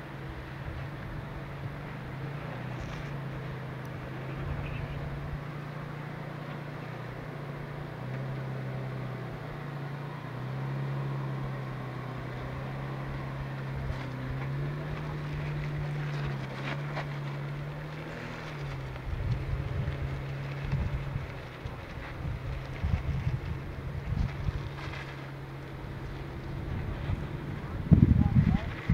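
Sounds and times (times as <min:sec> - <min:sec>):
engine working at low revs: 0:00.0 - 0:28.9
wind buffeting microphone: 0:18.6 - 0:28.9.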